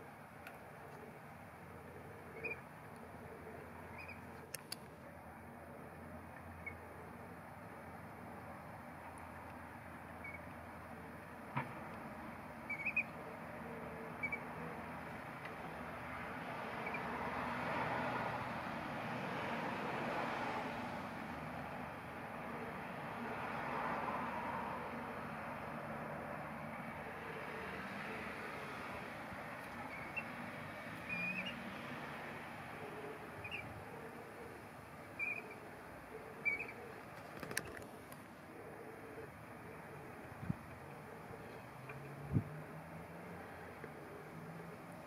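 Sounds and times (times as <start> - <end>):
road traffic noise: 0.0 - 45.0
faint bird chirps: 2.3 - 2.6, 12.7 - 13.2, 14.2 - 14.5, 31.1 - 31.6, 35.2 - 35.6, 36.4 - 36.8
oystercatchers piping calls: 12.7 - 13.1, 14.2 - 14.5, 33.4 - 33.7, 35.2 - 35.6, 36.4 - 36.9.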